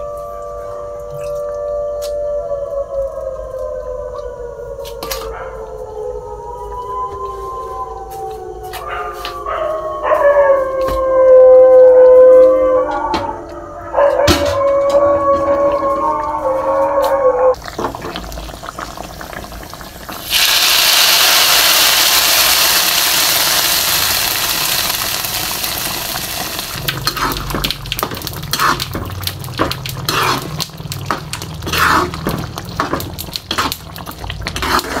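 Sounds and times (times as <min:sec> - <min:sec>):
hot oil sizzling: 0:17.6 - 0:35.0
ladle scraping metal pan: 0:31.6 - 0:32.3.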